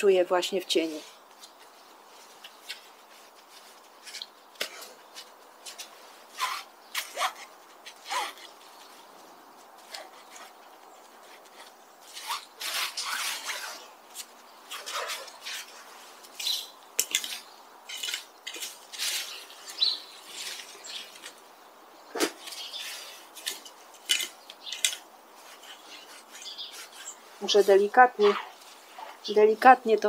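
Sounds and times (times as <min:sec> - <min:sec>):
rake scratching through dry leaves: 0:00.9 - 0:09.0, 0:09.8 - 0:21.4, 0:22.2 - 0:29.8.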